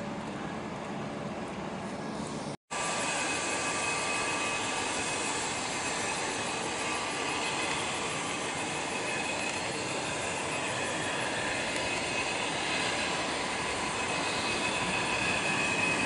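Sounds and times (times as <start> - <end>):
helicopter rotor noise: 0.0 - 16.0
turbine engine high whine: 0.0 - 16.0.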